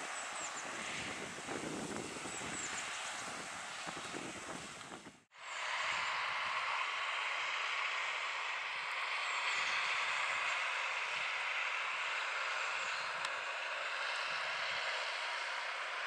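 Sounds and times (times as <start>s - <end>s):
tractor diesel engine under load: 0.0s - 16.0s.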